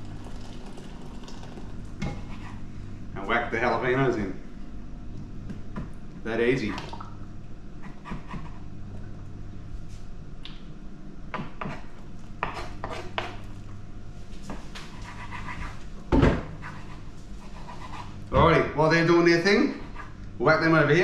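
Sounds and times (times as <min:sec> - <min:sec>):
water poured into bowl: 0:00.0 - 0:01.8
steady low hum: 0:00.0 - 0:21.0
knife on wooden chopping board: 0:12.4 - 0:13.4.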